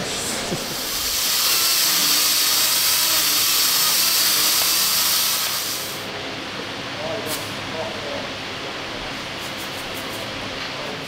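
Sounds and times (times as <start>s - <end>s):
pneumatic tool air hissing: 0.0s - 6.1s.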